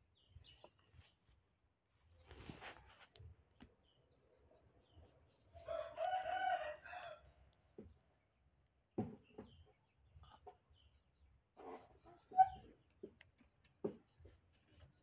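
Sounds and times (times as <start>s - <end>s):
rooster crowing: 5.6s - 7.3s.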